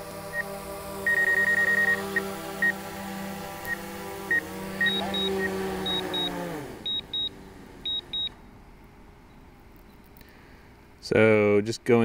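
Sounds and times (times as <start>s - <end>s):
drone propellers humming: 0.0s - 9.1s
short electronic beeps: 1.1s - 2.8s, 3.7s - 7.3s, 7.9s - 8.3s.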